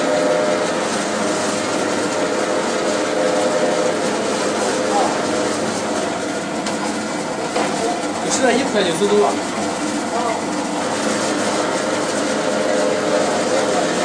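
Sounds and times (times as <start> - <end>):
dough roller machine humming: 0.0 - 14.0.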